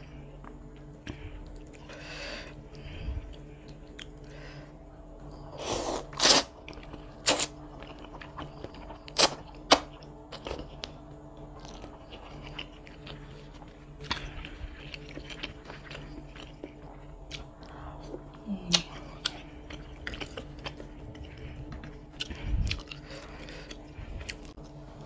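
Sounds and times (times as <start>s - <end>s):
slurping noodles: 5.6s - 6.6s
wet chewing: 11.5s - 24.7s.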